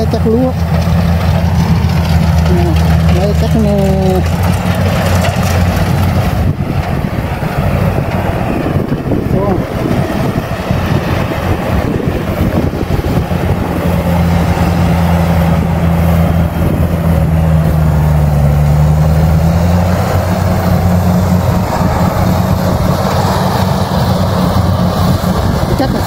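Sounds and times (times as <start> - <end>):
combine harvester engine droning: 0.0 - 26.0.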